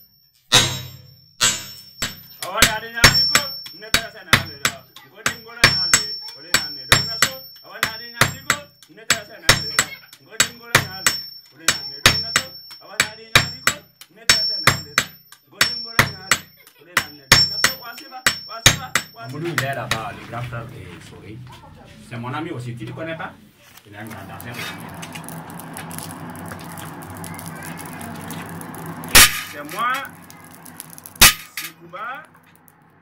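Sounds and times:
hammers striking metal on anvil: 0.5 - 20.2, 27.8 - 31.8.

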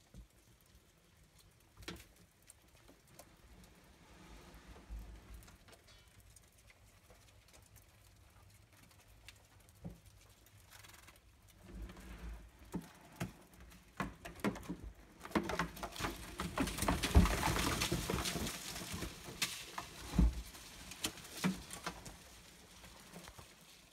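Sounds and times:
rustling in plastic bin: 11.5 - 23.9.

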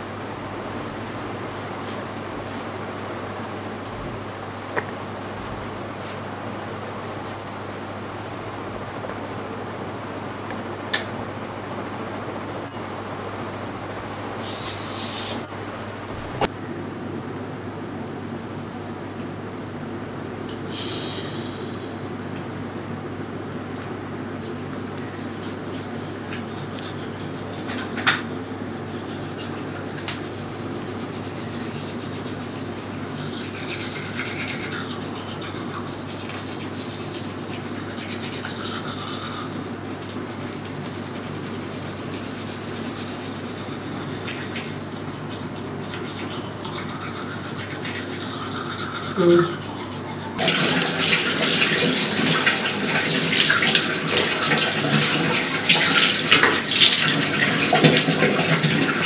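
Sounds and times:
steady low hum: 0.0 - 56.7
toothbrush scrubbing teeth: 24.4 - 59.0
tap water running into sink: 50.4 - 59.0.

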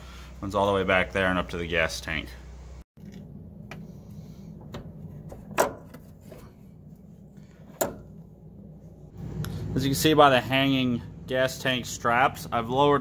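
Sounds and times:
low hum: 2.3 - 12.8.

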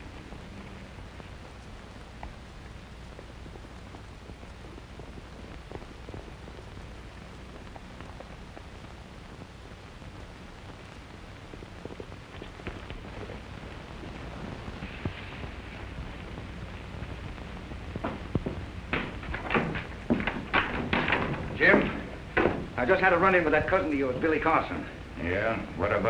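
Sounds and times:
film soundtrack hiss and crackle: 0.0 - 26.0
horse hooves on dirt: 14.2 - 24.2.

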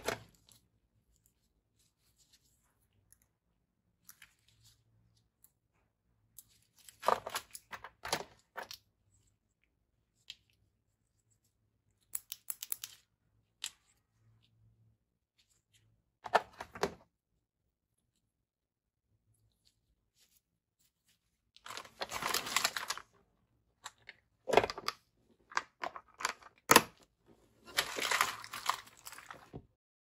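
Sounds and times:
packaging rustling and clicking: 21.6 - 23.1, 27.7 - 29.5.

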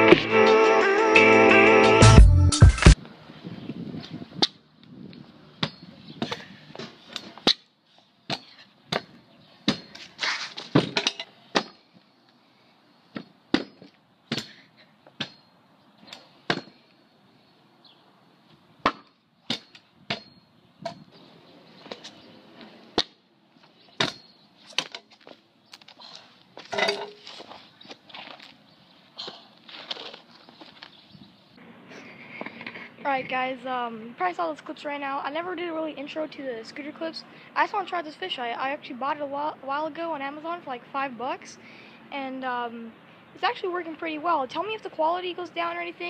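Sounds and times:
scooter wheels rolling: 24.6 - 31.4.

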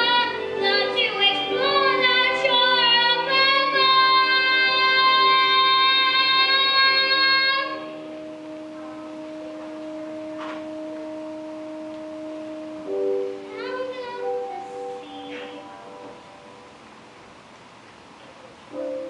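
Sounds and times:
backing music with held notes: 0.0 - 17.7, 18.6 - 19.0
child singing long high note: 13.5 - 16.0.

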